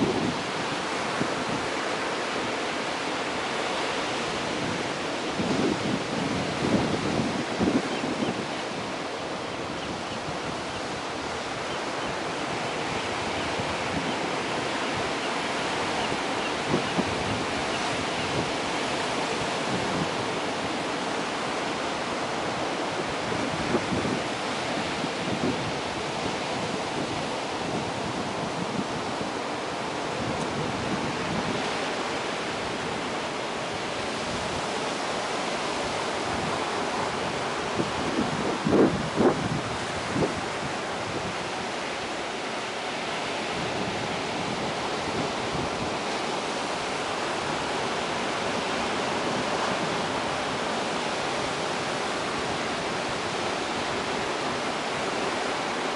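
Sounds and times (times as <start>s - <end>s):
waves breaking on rocky shore: 0.0s - 55.9s
wind bumps on microphone: 4.4s - 10.8s, 35.8s - 41.9s.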